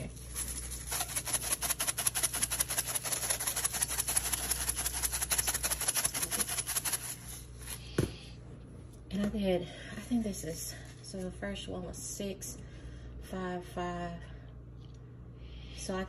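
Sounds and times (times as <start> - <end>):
spice shaker rattling: 0.0 - 7.6.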